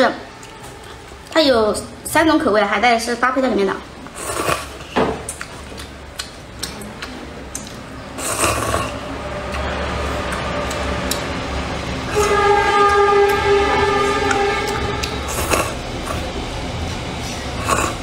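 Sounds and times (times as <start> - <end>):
slurping: 4.0 - 11.4, 12.1 - 16.6, 17.2 - 18.0
loud steady held tone: 8.6 - 18.0.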